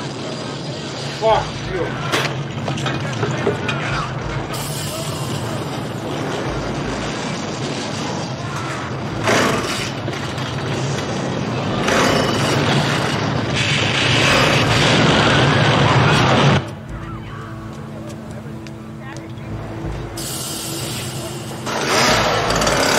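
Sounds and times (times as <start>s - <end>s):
chainsaw revving: 21.6s - 22.9s.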